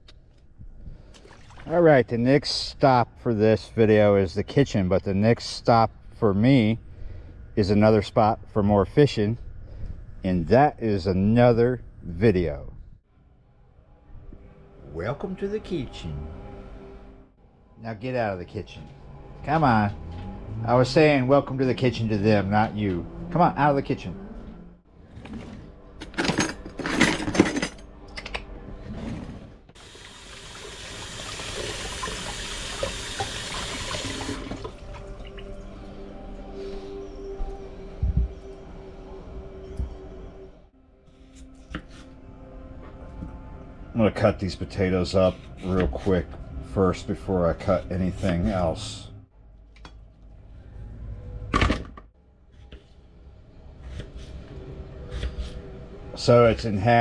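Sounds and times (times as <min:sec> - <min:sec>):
utensils clattering: 0:26.0 - 0:27.8
faucet running water: 0:29.8 - 0:35.5.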